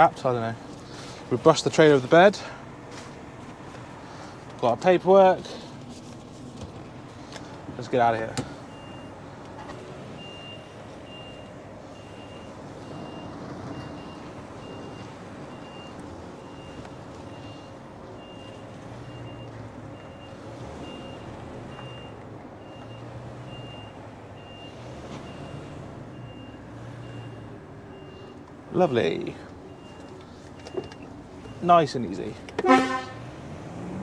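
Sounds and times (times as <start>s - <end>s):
diesel engine running: 0.0s - 34.0s
reversing alarm beeping: 10.2s - 31.7s.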